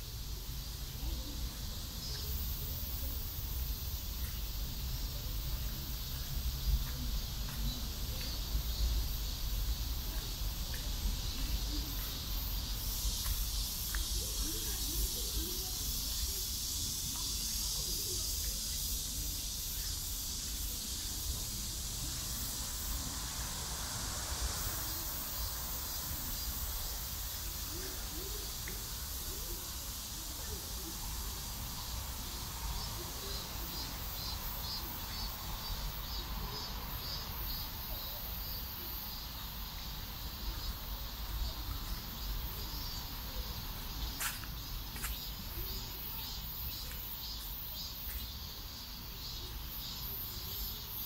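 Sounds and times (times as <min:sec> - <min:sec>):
cicadas droning: 0:00.0 - 0:51.0.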